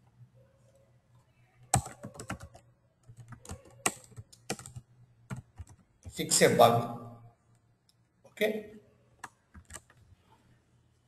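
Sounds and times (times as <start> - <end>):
typing on computer keyboard: 1.6 - 6.2, 9.2 - 10.0.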